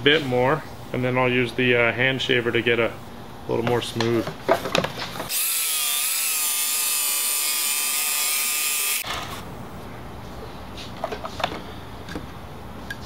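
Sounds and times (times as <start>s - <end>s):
electric knife motor whine: 5.3s - 9.4s.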